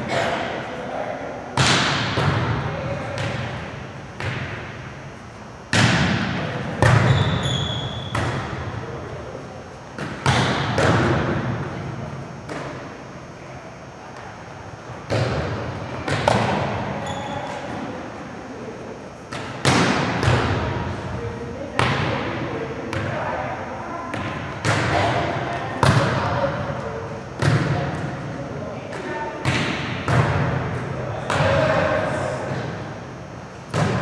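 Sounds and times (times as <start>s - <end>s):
volleyball slaps echoing: 1.5s - 5.0s, 5.7s - 9.0s, 10.0s - 13.0s, 14.9s - 17.9s, 19.3s - 23.5s, 24.1s - 33.0s, 33.6s - 34.0s.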